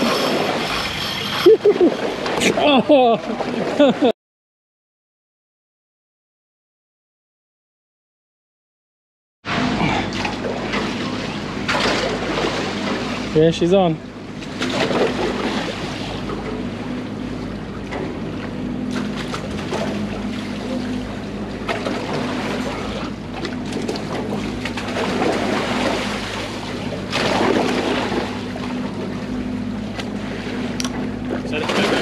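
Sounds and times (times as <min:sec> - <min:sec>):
boat machinery drone: 0:00.0 - 0:04.1, 0:09.4 - 0:32.0
water washing around hull: 0:00.0 - 0:04.1, 0:09.5 - 0:32.0.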